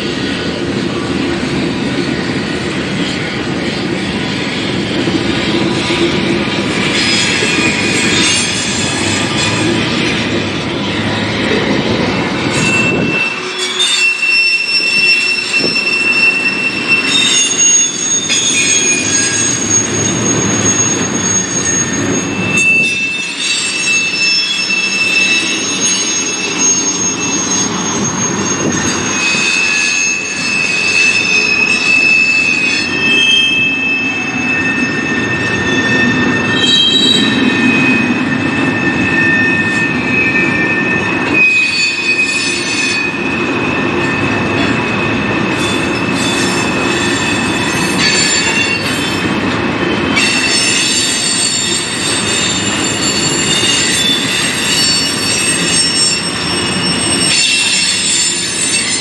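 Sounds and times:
train cars rumbling: 0.0s - 59.0s
steel wheels squealing: 2.5s - 59.0s.

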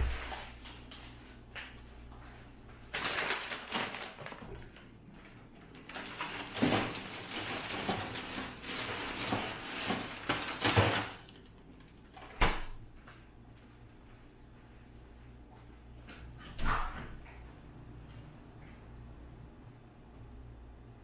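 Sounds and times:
rustling and clattering: 5.6s - 12.4s.

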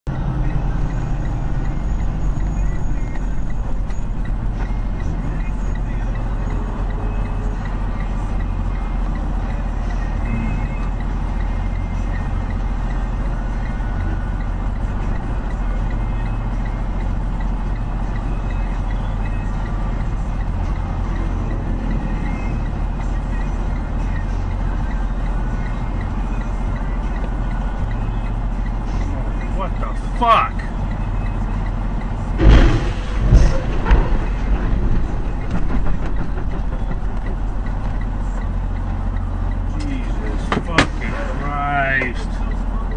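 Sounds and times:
engine and road rumble: 0.0s - 42.9s
faint regular ticking: 0.1s - 40.8s
heavy crash thumps: 32.3s - 37.8s.

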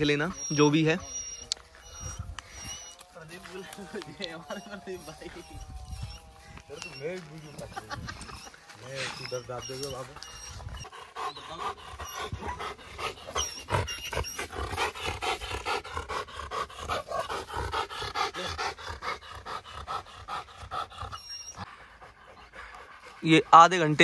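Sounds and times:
dog panting fast: 6.6s - 24.0s.

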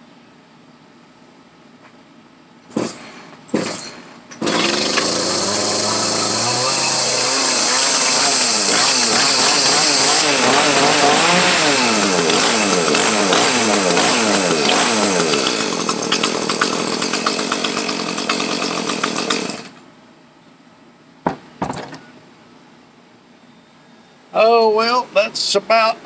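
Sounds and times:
chainsaw engine revving: 2.7s - 19.8s.

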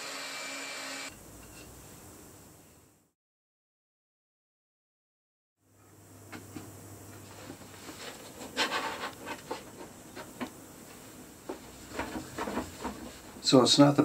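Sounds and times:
wood scraping: 7.9s - 10.4s.

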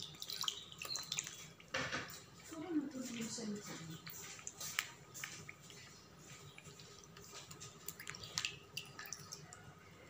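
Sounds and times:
small water splashes: 0.0s - 2.5s, 3.1s - 9.7s.

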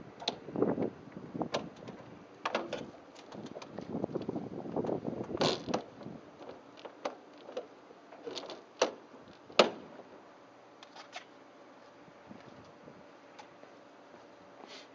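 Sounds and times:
door and cabin hardware knocks: 8.8s - 9.9s.

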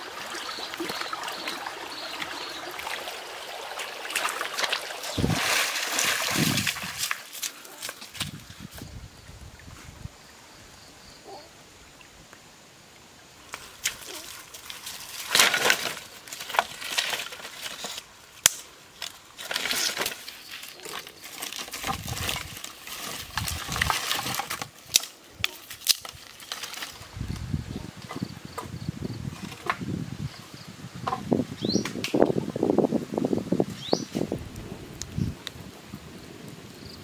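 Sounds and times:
sticks knocking and scraping together: 13.5s - 27.1s.

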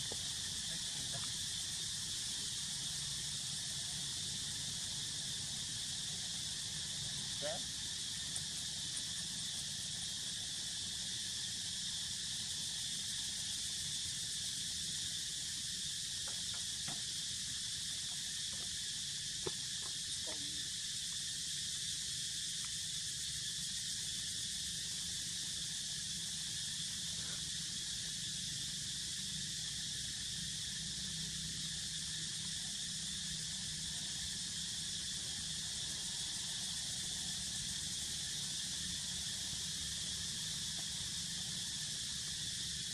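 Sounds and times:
high-pitched insect chirring: 0.0s - 42.9s
faint ticks: 22.6s - 22.8s.

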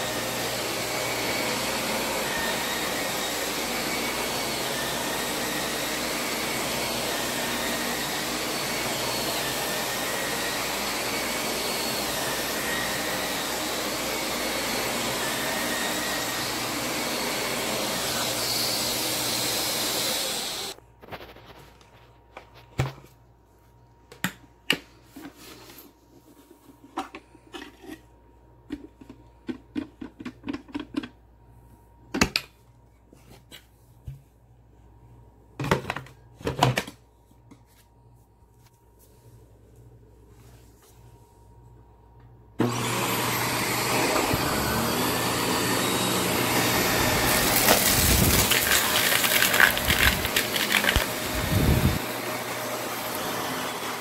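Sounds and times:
vacuum cleaner running: 0.0s - 21.2s, 42.5s - 54.0s.

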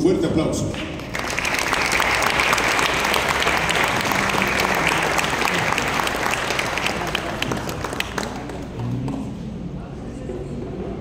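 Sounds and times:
audience applauding: 0.8s - 9.2s.

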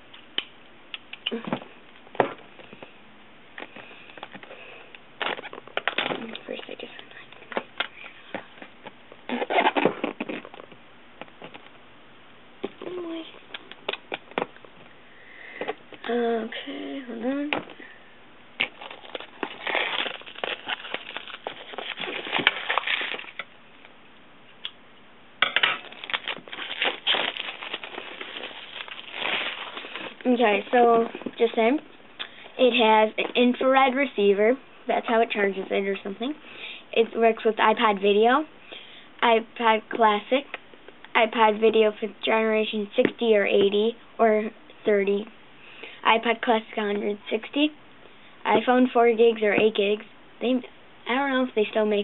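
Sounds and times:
packaging rustling: 18.6s - 23.5s, 25.6s - 31.4s
plastic wrap crackling: 18.6s - 23.6s, 25.5s - 31.6s.

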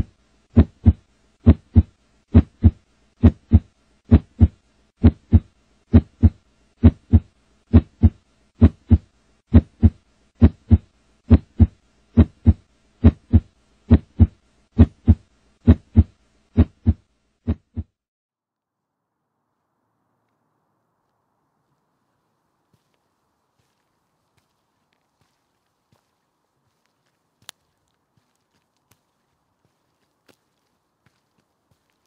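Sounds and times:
heartbeat thumps: 0.0s - 18.0s.

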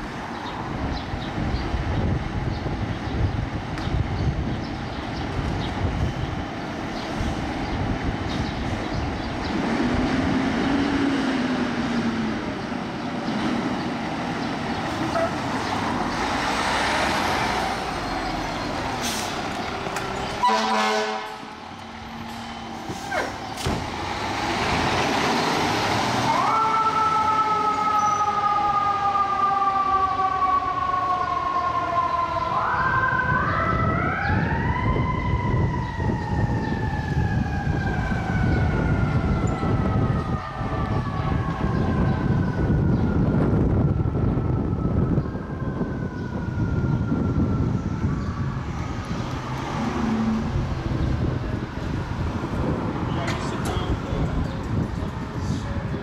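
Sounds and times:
short horn blast: 20.4s - 21.5s
siren wailing: 26.2s - 50.8s.

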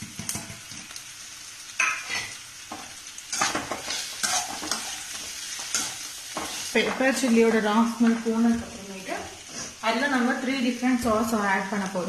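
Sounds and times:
oil sizzling: 0.0s - 12.0s
spoon scraping metal pan: 1.8s - 7.4s.

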